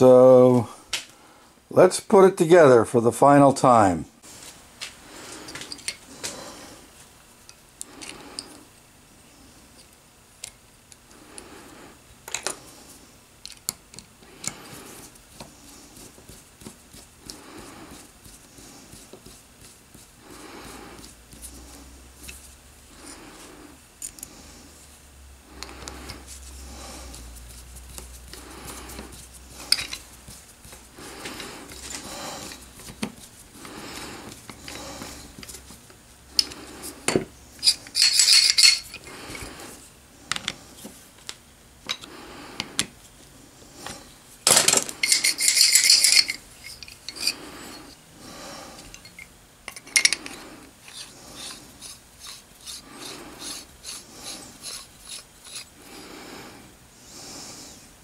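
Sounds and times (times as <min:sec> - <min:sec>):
metal parts clinking and scraping: 0:29.7 - 0:30.1, 0:37.6 - 0:39.5, 0:44.4 - 0:48.0, 0:48.8 - 0:52.8
metallic rattling: 0:44.5 - 0:47.4.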